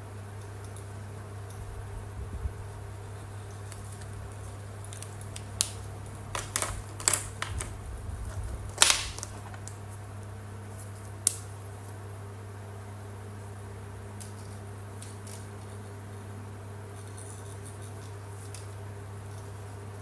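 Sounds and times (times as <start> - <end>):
steady low hum: 0.0 - 20.0
plastic markers clicking on table: 6.4 - 7.7.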